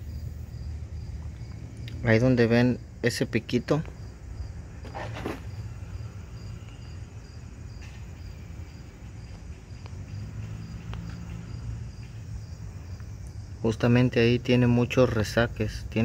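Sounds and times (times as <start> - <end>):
cricket chirping: 0.0 - 16.0.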